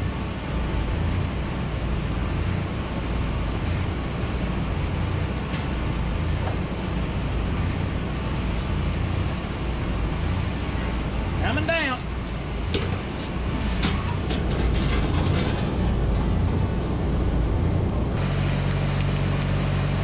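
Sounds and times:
arc welding hiss: 0.0s - 14.3s
machinery rumbling: 0.0s - 20.0s.

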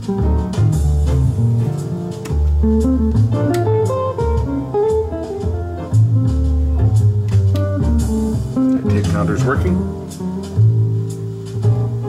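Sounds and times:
guitar music with bass line: 0.0s - 12.0s.

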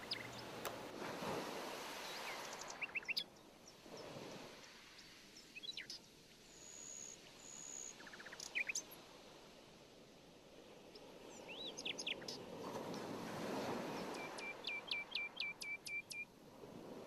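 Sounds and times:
thin high bird whistles: 0.0s - 0.5s, 13.9s - 16.2s
small birds chirping: 0.0s - 0.7s, 2.0s - 4.1s, 4.9s - 9.0s, 10.9s - 13.0s, 13.9s - 16.2s.

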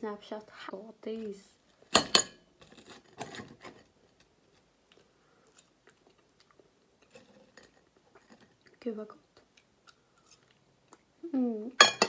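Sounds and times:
chewing and mouth sounds: 4.9s - 7.0s.

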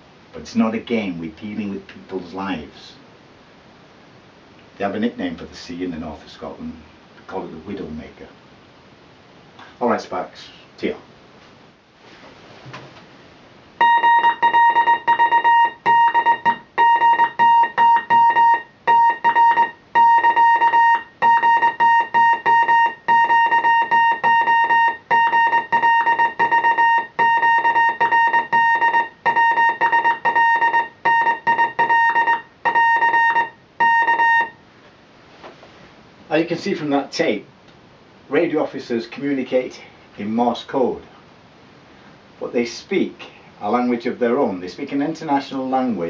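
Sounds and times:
morse code tone: 13.8s - 34.6s.

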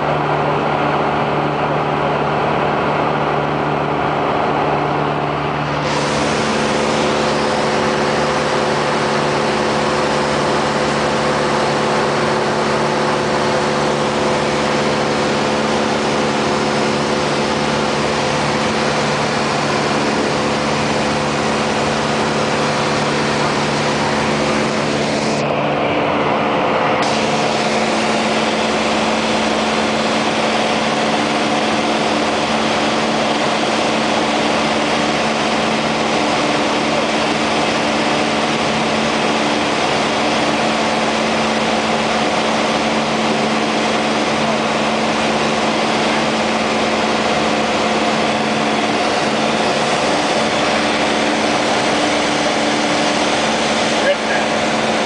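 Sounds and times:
propeller plane engine in cabin: 0.0s - 55.0s
rush of air: 3.9s - 31.2s.

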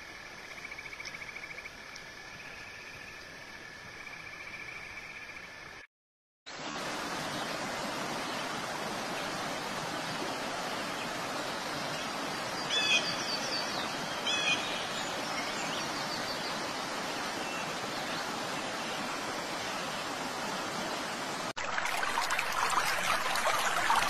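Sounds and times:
stream rushing over rocks: 6.5s - 24.0s.

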